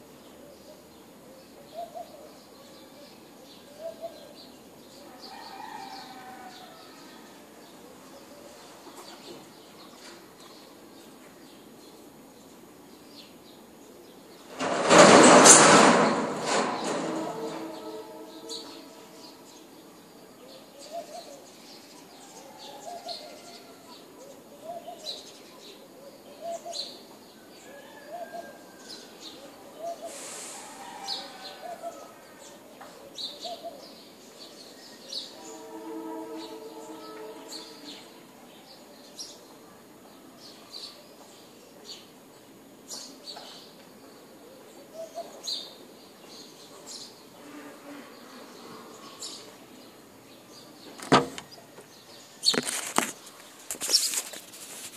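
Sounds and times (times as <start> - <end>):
pigeons cooing: 0.4 - 4.4
brief hiss: 30.0 - 31.1.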